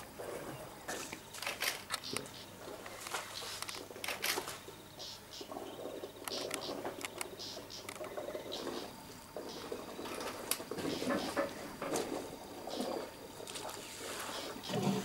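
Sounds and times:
sharp clicks: 0:01.4 - 0:02.4, 0:06.2 - 0:08.2
water splashing and trickling: 0:05.5 - 0:15.0.

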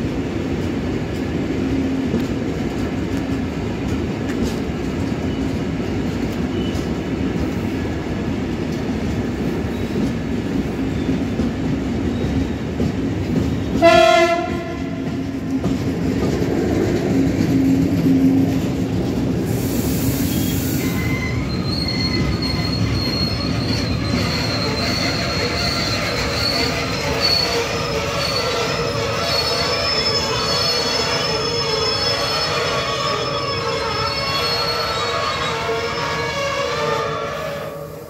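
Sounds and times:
train wheels rumbling on rail: 0:00.0 - 0:38.0
train horn blast: 0:13.8 - 0:15.1, 0:34.9 - 0:38.0
wheels squealing: 0:19.4 - 0:37.0.

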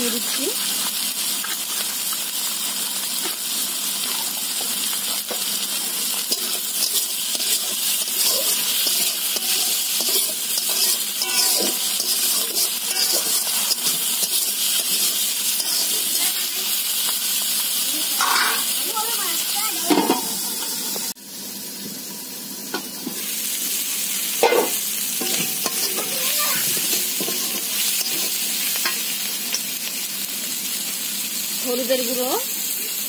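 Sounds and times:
food sizzling in hot oil: 0:00.0 - 0:33.0
spatula scraping a wok: 0:05.1 - 0:16.9, 0:18.2 - 0:18.7, 0:24.4 - 0:29.2.

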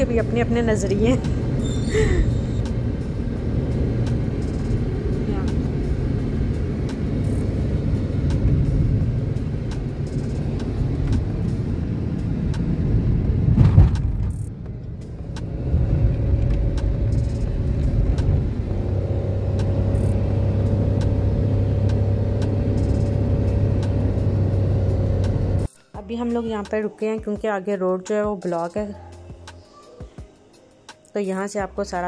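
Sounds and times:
car engine drone: 0:00.0 - 0:25.7
tyre rumble: 0:13.4 - 0:14.7.

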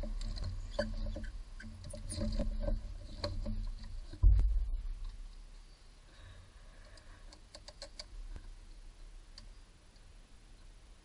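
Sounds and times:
low thump: 0:04.2 - 0:05.1
hands clicking and tapping wiring: 0:06.9 - 0:08.5.

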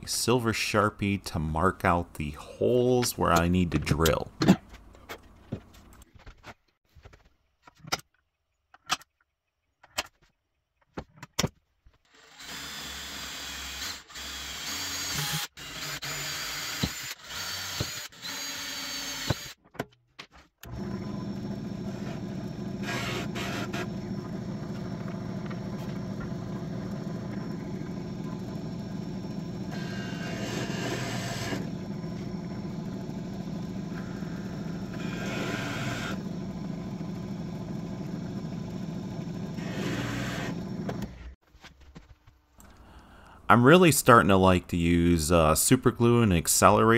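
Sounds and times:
power drill drilling wood: 0:12.1 - 0:19.6, 0:20.6 - 0:41.2
steady mechanical drone: 0:20.7 - 0:41.3.

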